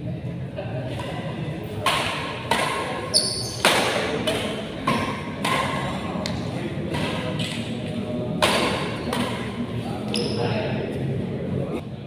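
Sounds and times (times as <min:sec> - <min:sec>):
rackets hitting shuttlecock: 0:00.9 - 0:10.4.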